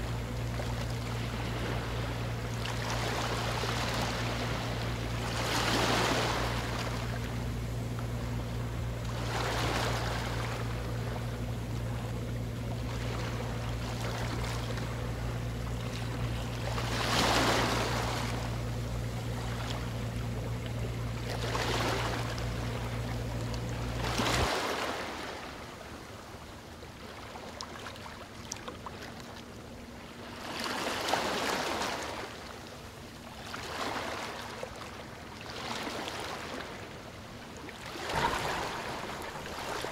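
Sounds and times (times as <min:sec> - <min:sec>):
steady low hum: 0:00.0 - 0:39.9
rushing water: 0:37.8 - 0:39.9.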